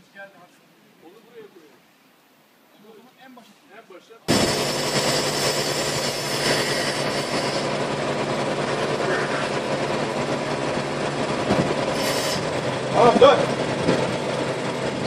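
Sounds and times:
crane diesel engine running: 4.3 - 15.0.

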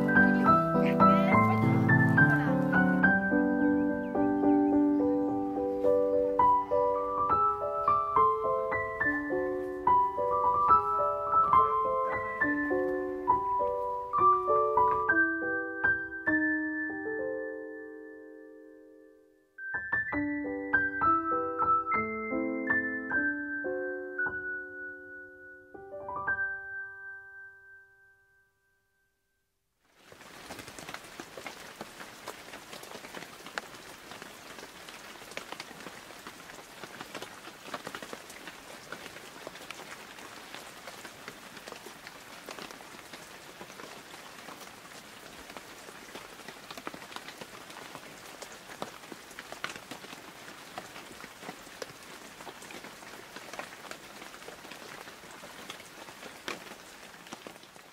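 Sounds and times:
steady rain falling: 0.0 - 17.2, 29.8 - 57.9
piano note: 0.0 - 28.2.

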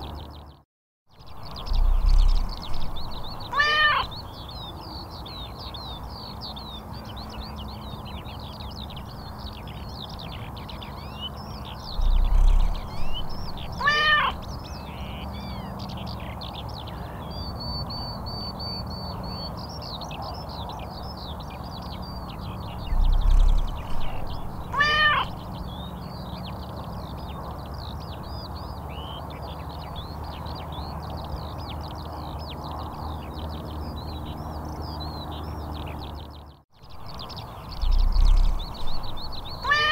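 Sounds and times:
small birds chirping: 0.0 - 39.9
cat meowing: 3.5 - 4.1, 13.8 - 14.4, 24.7 - 25.3, 39.6 - 39.9.

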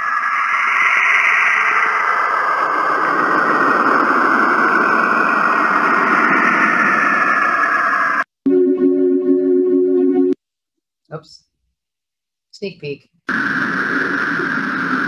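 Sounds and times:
static-like hiss with whistling: 13.3 - 15.0.

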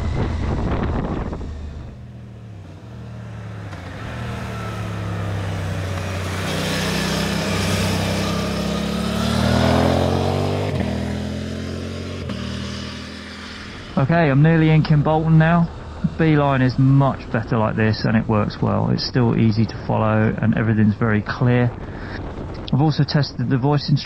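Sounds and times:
motorcycle riding past: 0.0 - 17.0.

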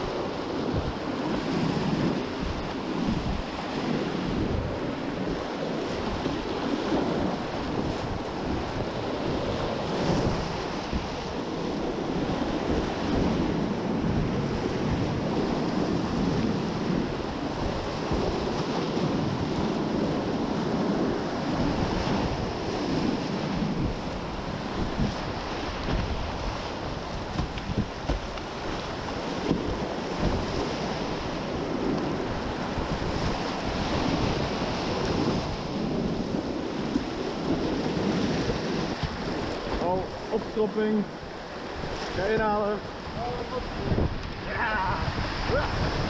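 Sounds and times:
wind noise on microphone: 0.0 - 46.0
whitewater rapids rushing: 41.9 - 46.0.

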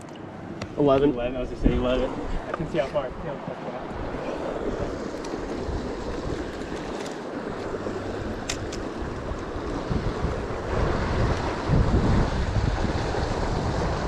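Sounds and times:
wind rumbling on microphone: 0.6 - 14.0
fast river current rushing: 1.9 - 14.0.

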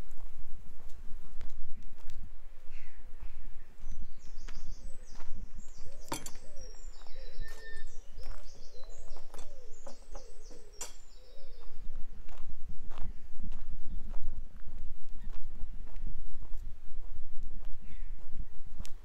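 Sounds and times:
birds chirping: 2.7 - 11.9
short lower bird calls: 4.3 - 11.8.

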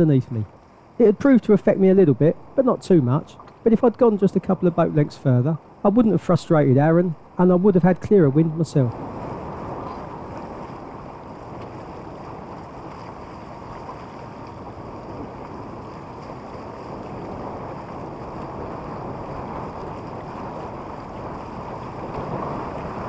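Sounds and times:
water rushing along hull: 0.0 - 23.0
wind buffeting microphone: 0.0 - 23.0.

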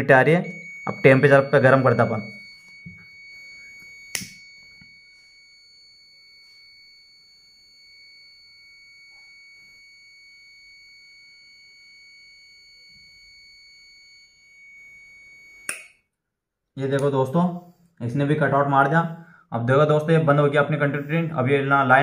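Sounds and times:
high-pitched continuity beep: 0.0 - 15.7
lighter click: 4.1 - 4.4.

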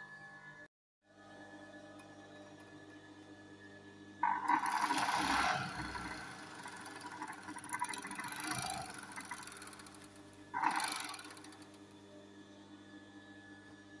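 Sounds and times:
overlock sewing machine stitching: 4.2 - 11.8.

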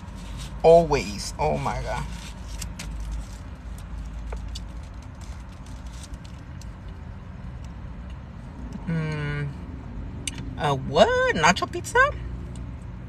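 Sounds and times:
low rumble inside car: 0.0 - 13.0
paper wrapper rustling: 2.0 - 6.7.

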